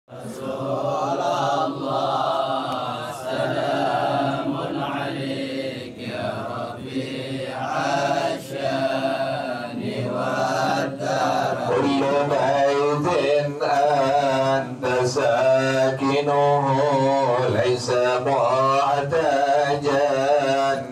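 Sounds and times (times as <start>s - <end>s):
man chanting verse: 0.1s - 20.9s.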